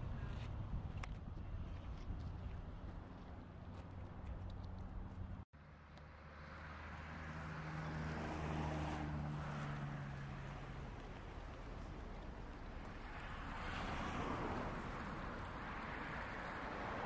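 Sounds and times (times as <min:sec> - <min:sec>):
vehicle driving past: 0:06.1 - 0:17.0.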